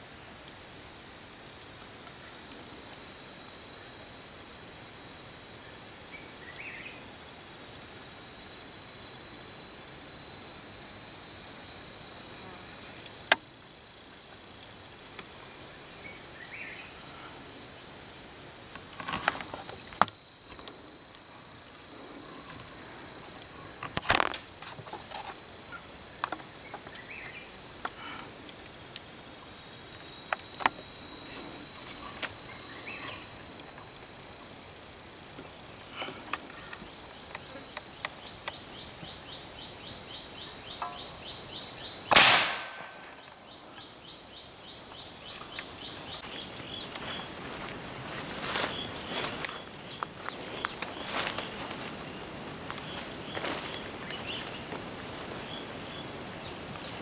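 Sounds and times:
insects buzzing: 0.0 - 57.0
gunshot with ringing tail: 42.1 - 43.1.

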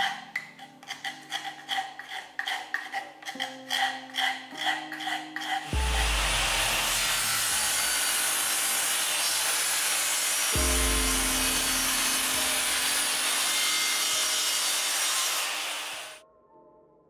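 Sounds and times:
table saw cutting plywood: 3.3 - 16.2.

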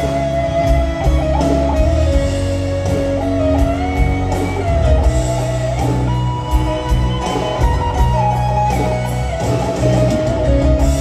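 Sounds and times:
lead electric guitar sliding notes: 0.0 - 11.0
live rock band: 0.0 - 11.0.

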